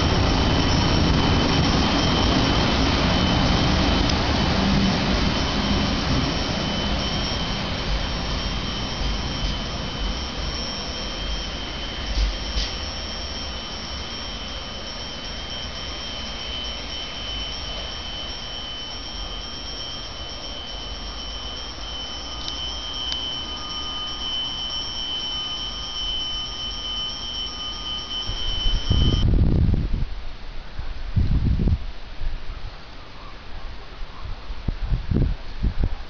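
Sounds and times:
wind buffeting microphone: 0.0s - 10.2s, 28.4s - 31.9s, 34.6s - 36.0s
high-pitched whine: 0.0s - 30.0s
train rumble: 0.0s - 31.8s.

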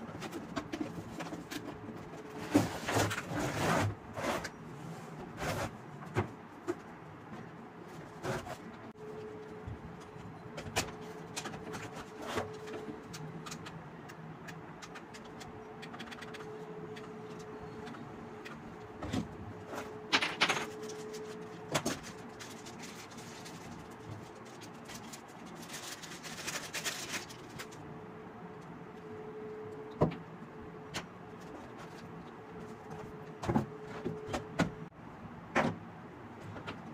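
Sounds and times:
packaging rustle: 20.6s - 27.8s.

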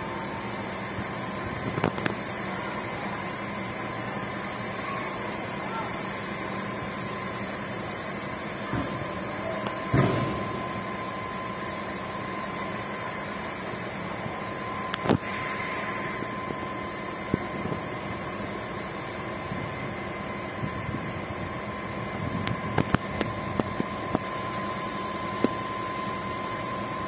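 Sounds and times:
mechanical drone with high whine: 0.0s - 27.0s.

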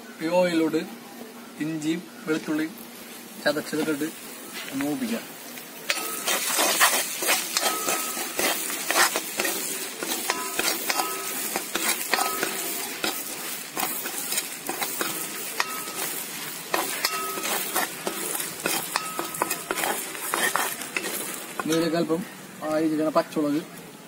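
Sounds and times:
ginger and garlic sizzling in oil: 1.7s - 24.0s
steel ladle scraping pan: 5.9s - 22.0s.

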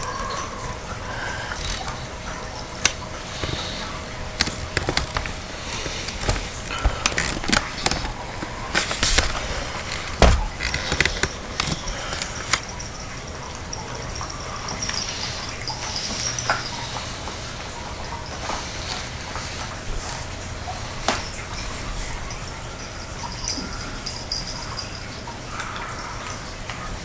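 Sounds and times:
knocks and clatters on wooden floor: 8.8s - 12.7s.

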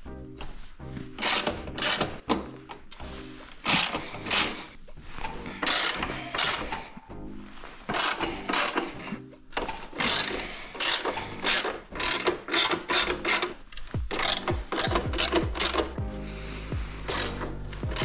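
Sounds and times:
ratchet wrench clicking: 1.2s - 2.2s, 3.7s - 4.6s, 5.6s - 6.7s, 7.9s - 8.9s, 10.0s - 16.0s, 17.1s - 18.0s.

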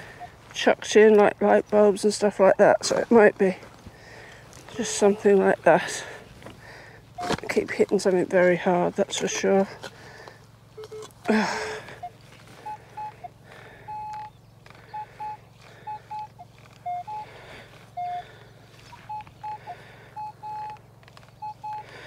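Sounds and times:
metal detector beeps: 0.0s - 0.4s, 7.1s - 7.6s, 10.8s - 22.0s
spade striking stony ground: 7.2s - 7.6s.

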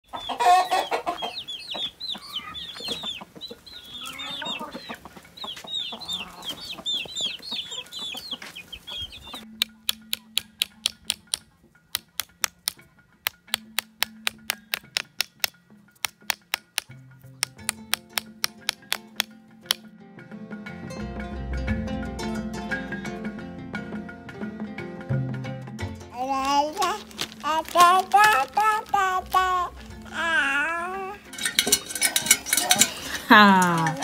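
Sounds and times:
chickens clucking: 0.0s - 19.8s, 26.2s - 34.0s
chicken squawk: 0.1s - 9.4s
high chirping calls: 0.1s - 12.7s, 13.3s - 15.5s
music of sharp ticking clicks: 6.7s - 19.9s, 25.6s - 34.0s.

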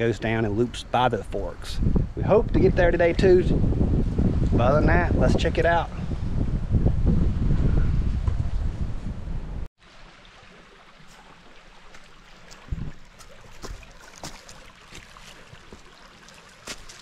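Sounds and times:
wind rumble on microphone: 1.2s - 9.7s, 12.6s - 13.1s
creek trickling over stones: 9.8s - 17.0s
footsteps on boulders and leaves: 11.0s - 17.0s.

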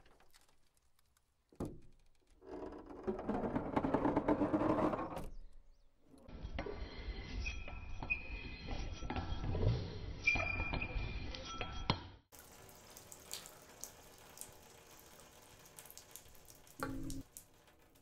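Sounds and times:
water drip: 12.3s - 18.0s
water pipes rumbling and clanking: 12.4s - 18.0s.

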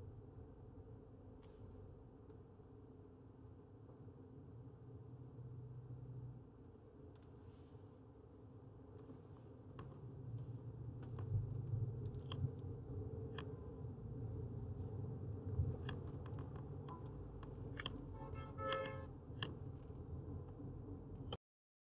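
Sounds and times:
low steady hum: 0.0s - 21.4s
mouse and keyboard clicks: 9.0s - 12.6s, 13.3s - 13.6s, 15.7s - 20.1s
brief buzzing tone: 18.1s - 19.1s.

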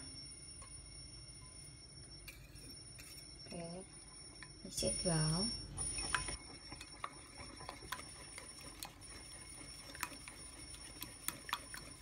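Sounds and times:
whisk clinking against ceramic bowl: 5.9s - 12.0s.

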